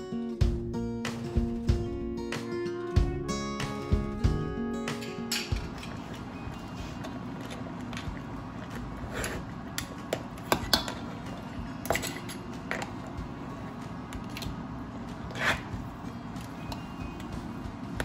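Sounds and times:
metal spoon scraping a pan: 0:08.7 - 0:09.9, 0:15.3 - 0:15.8.

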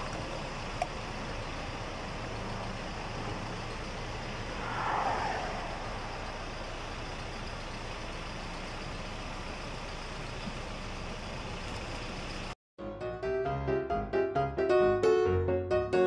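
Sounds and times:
motor vehicles noise: 0:00.0 - 0:12.6.

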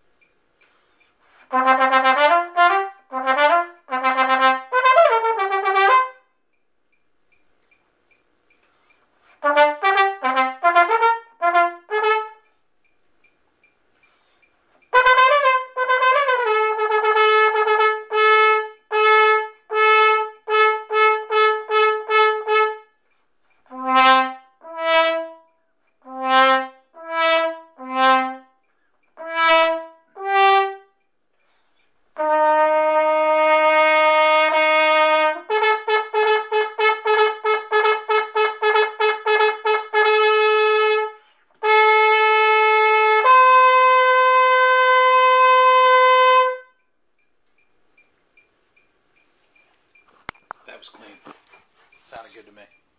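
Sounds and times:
marching brass horn playing: 0:01.4 - 0:06.3, 0:09.4 - 0:12.5, 0:14.9 - 0:23.0, 0:23.7 - 0:28.6, 0:29.2 - 0:31.0, 0:32.2 - 0:46.8.

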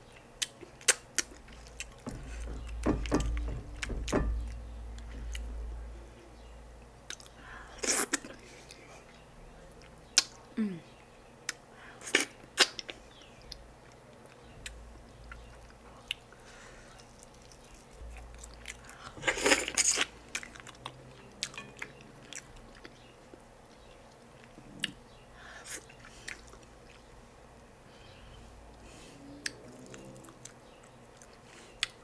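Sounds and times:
wet chewing mouth sounds: 0:11.5 - 0:21.6, 0:25.7 - 0:27.1.

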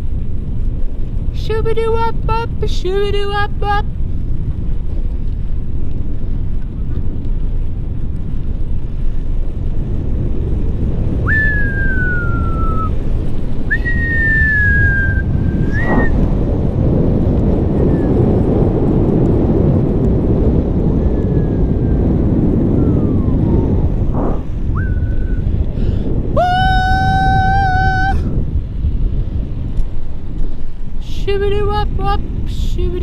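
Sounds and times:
wind on microphone: 0:00.0 - 0:33.0
person whistling: 0:11.3 - 0:12.9, 0:13.7 - 0:16.2, 0:24.7 - 0:25.4.

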